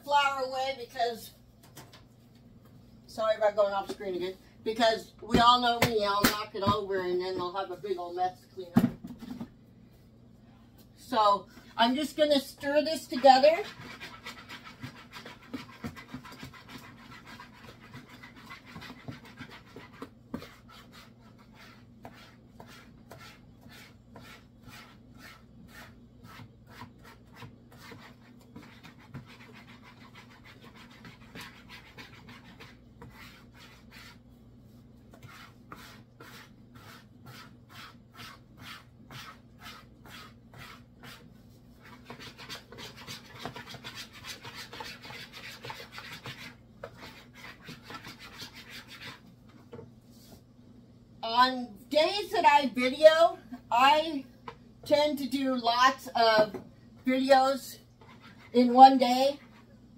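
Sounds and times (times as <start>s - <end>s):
whisk scraping plastic bowl: 12.6s - 34.2s, 35.0s - 49.8s, 57.1s - 59.7s.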